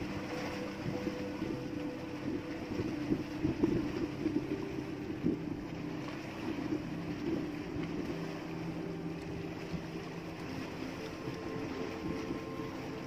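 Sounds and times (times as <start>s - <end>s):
small boat engine humming: 0.0s - 13.0s.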